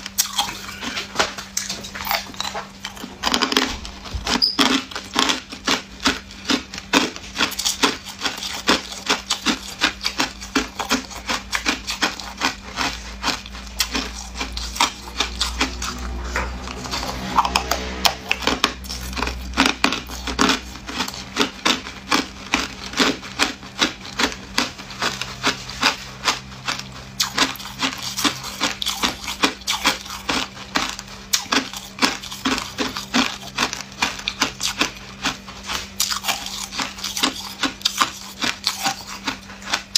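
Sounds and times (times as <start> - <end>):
ice cubes crunched by teeth: 0.1 - 39.9
low rumble: 1.9 - 5.0, 14.6 - 19.9.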